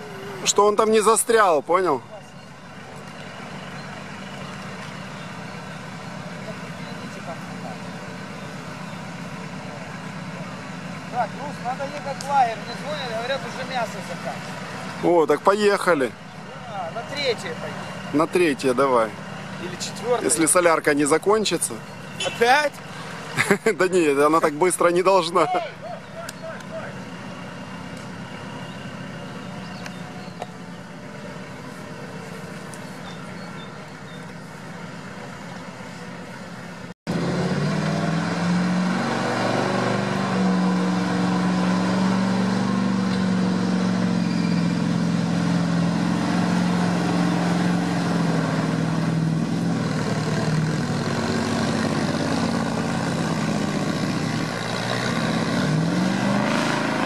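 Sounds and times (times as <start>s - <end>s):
off-road vehicle engines in mud: 0.0s - 57.0s
engine revving: 37.1s - 57.0s.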